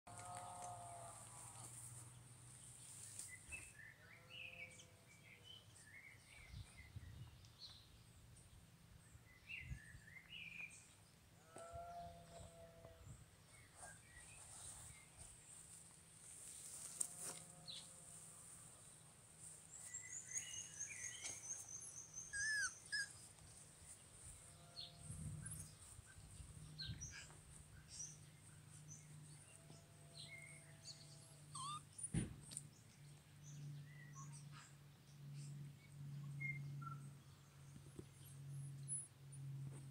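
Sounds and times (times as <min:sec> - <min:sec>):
small birds chirping: 0:19.4 - 0:39.1.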